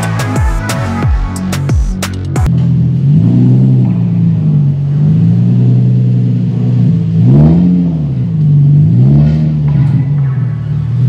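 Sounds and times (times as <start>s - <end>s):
car exhaust at low revs: 1.3s - 11.0s.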